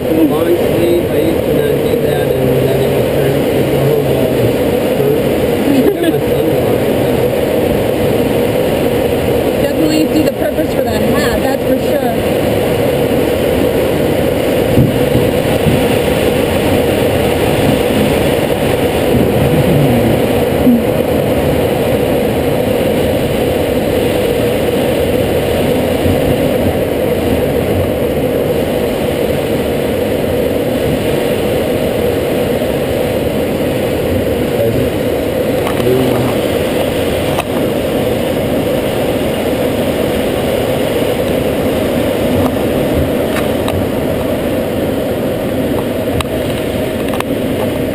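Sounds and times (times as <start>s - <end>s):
air rushing over canopy: 10.8s - 47.9s.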